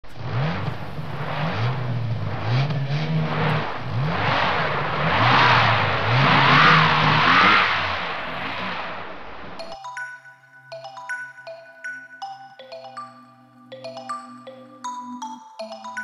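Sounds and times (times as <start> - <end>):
race car engine revving: 0.0 - 9.6
high whine rising and falling: 0.0 - 9.7.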